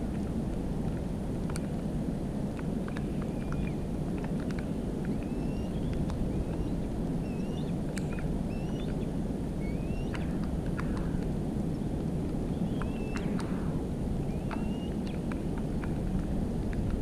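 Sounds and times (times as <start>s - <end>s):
steady low rumbling: 0.0s - 17.0s
soft clicks: 0.1s - 1.9s, 2.5s - 7.2s, 7.9s - 9.0s, 10.1s - 11.3s, 12.2s - 13.6s, 14.4s - 17.0s
whistled bird calls: 3.2s - 3.8s, 5.1s - 10.4s, 12.5s - 13.4s, 14.2s - 15.2s.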